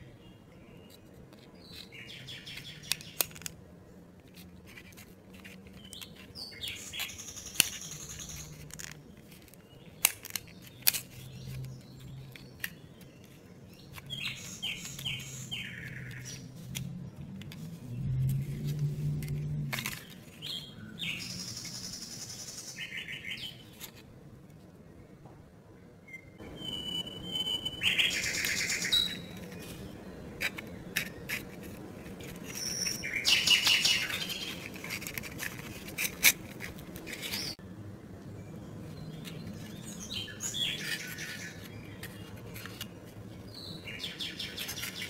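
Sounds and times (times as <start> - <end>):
cardboard pieces clicking and snapping: 2.5 - 3.6, 7.0 - 15.3, 30.4 - 37.6
squeaky cardboard scrapes: 34.1 - 37.6.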